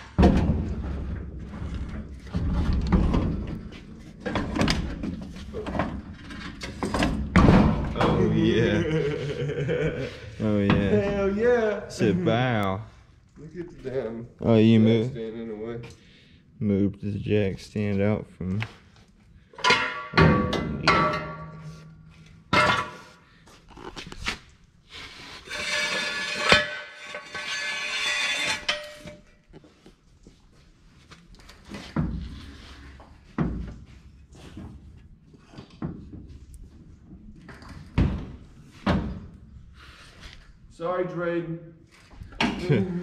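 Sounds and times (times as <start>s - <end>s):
metal clanks and knocks: 0.0s - 8.2s, 19.5s - 23.1s, 25.5s - 29.3s.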